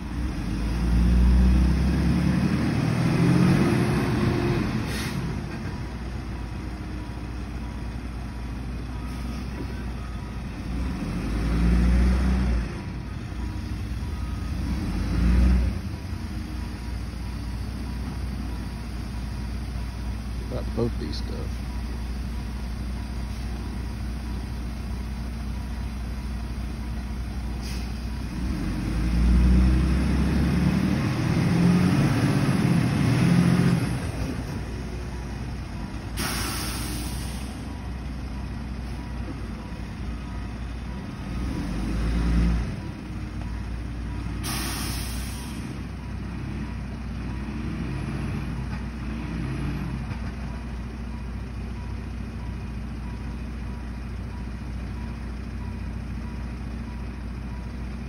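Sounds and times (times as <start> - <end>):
distant diesel engines revving: 0.0 - 51.5
air release hisses: 36.2 - 37.6, 44.4 - 45.7.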